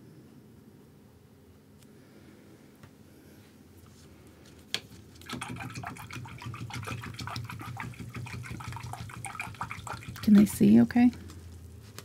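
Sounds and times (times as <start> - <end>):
paintbrush sloshing in water cup: 4.8 - 10.7.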